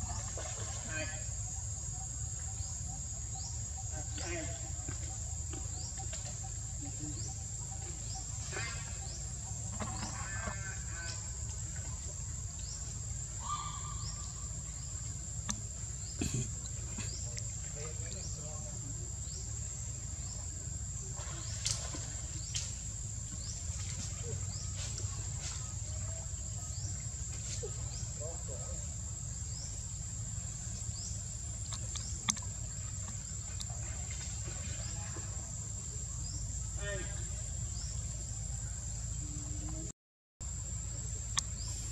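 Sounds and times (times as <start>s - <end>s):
insects droning: 0.0s - 41.9s.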